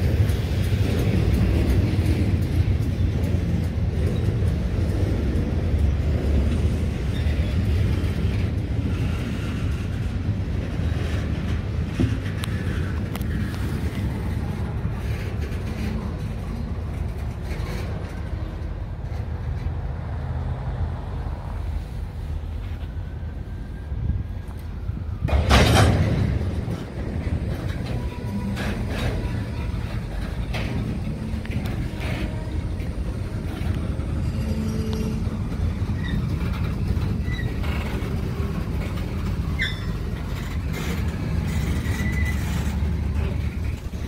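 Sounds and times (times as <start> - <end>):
passing vehicles rumbling: 0.0 - 44.0.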